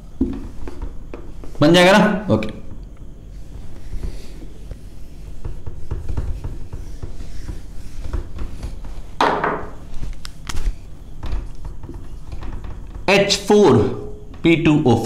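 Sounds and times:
eraser rubbing on whiteboard: 3.4s - 9.1s
small scrapes and knocks: 3.5s - 12.6s.

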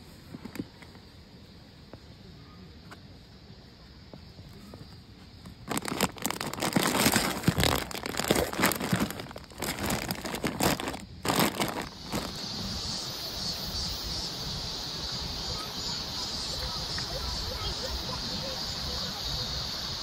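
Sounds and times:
plastic ice bag crinkling: 5.6s - 12.6s.

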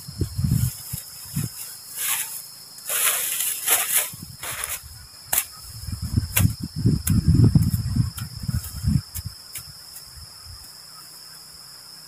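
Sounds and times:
crickets chirping: 0.0s - 12.0s
dry leaves rustling: 0.4s - 5.6s
machete chopping ground: 2.9s - 5.6s, 6.3s - 10.1s.

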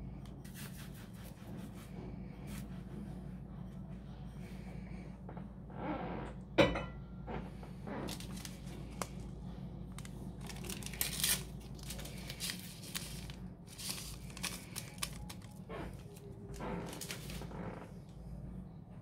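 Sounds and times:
packet crinkling and tearing: 8.0s - 9.3s, 9.9s - 17.5s.

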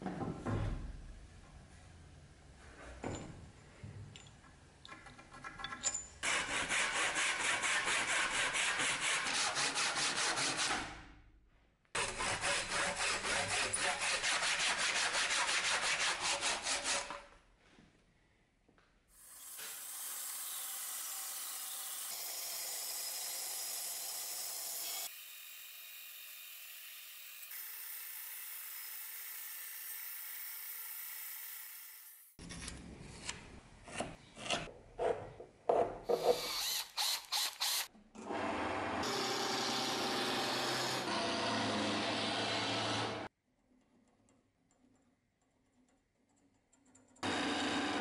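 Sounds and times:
chisel cutting wood: 36.1s - 37.9s, 39.0s - 43.3s
band saw cutting wood: 38.5s - 43.3s.

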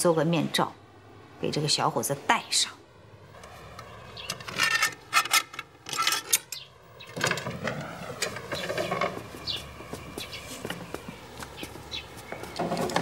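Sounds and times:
wooden door creaking open: 7.0s - 9.4s.

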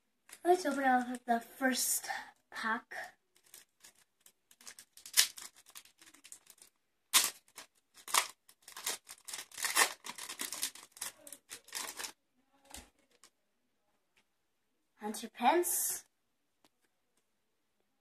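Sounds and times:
foil wrapper tearing and crinkling: 3.4s - 12.2s.

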